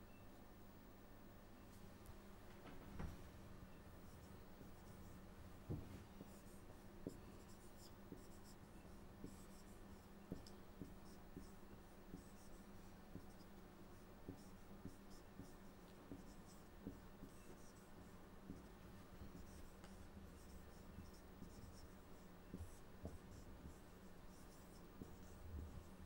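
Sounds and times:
marker squeaking on whiteboard: 0:06.2 - 0:26.0.

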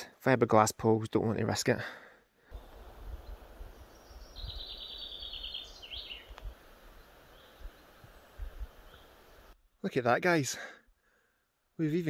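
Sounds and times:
songbird trilling: 0:02.5 - 0:09.3.

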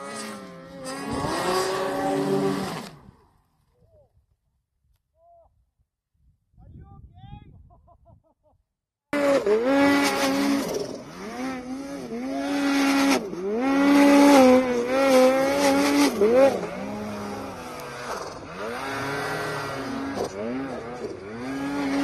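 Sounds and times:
snowmobile engine revving: 0:00.0 - 0:03.3, 0:09.2 - 0:22.0.

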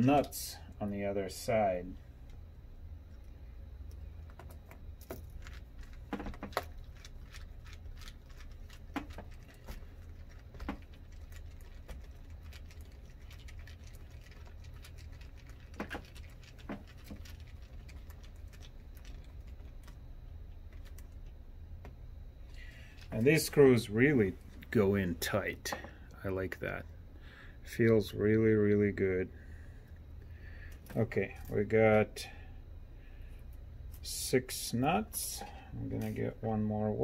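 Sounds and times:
low steady hum: 0:00.0 - 0:37.0.

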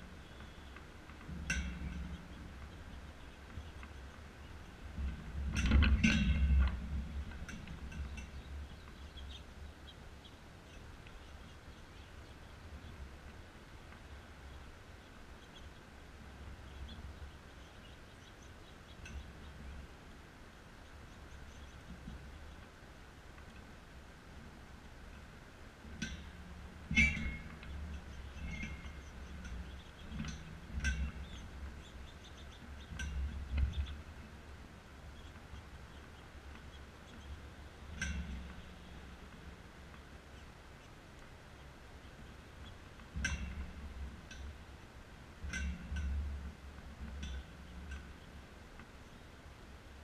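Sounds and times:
seeds and wire tray clattering: 0:00.0 - 0:09.4, 0:25.8 - 0:34.1
small birds chirping: 0:00.0 - 0:23.9, 0:24.6 - 0:46.3, 0:47.0 - 0:50.0.

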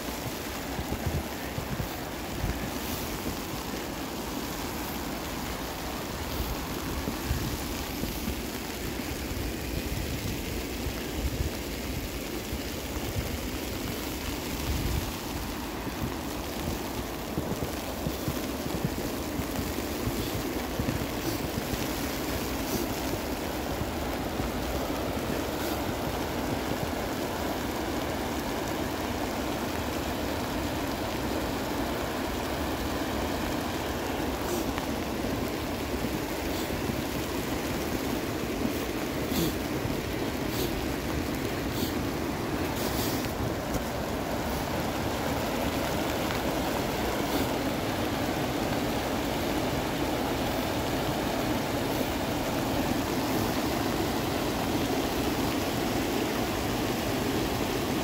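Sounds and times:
mountain creek rushing: 0:00.0 - 0:58.0.

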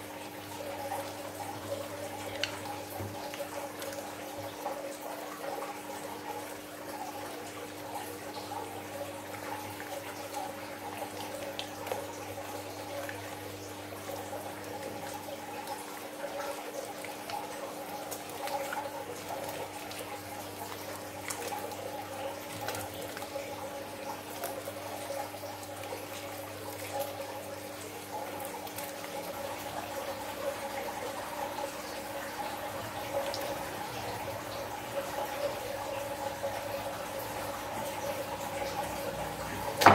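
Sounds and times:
steady background hum: 0:00.0 - 0:39.9
wet slime squelching: 0:14.6 - 0:39.9.

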